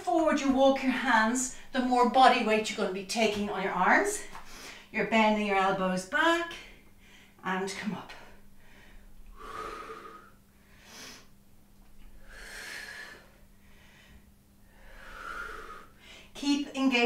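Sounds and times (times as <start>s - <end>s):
woman breathing: 4.3s - 4.9s, 6.6s - 7.4s, 8.1s - 11.4s, 12.0s - 16.4s.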